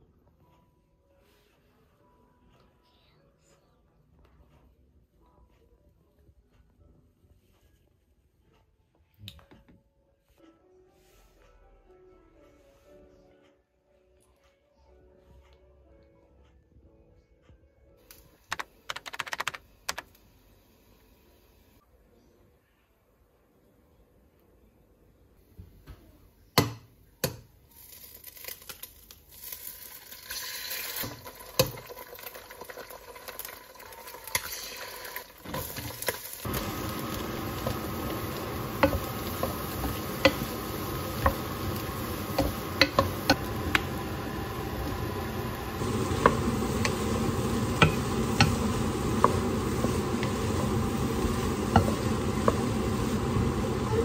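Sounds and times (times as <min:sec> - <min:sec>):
vegetables sizzling in a wok: 0:27.6 - 0:54.0.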